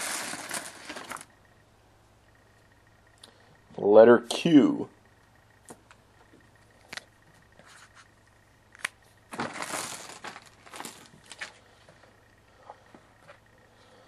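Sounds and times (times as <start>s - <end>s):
crinkly rustling: 0.0s - 1.4s, 9.2s - 12.3s.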